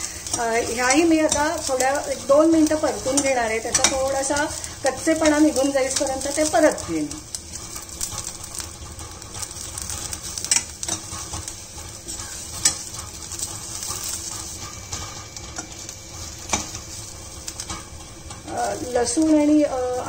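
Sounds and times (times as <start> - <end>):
spatula tapping and scraping pan: 0.0 - 6.8, 7.5 - 19.3
onions sizzling in oil: 0.0 - 20.0.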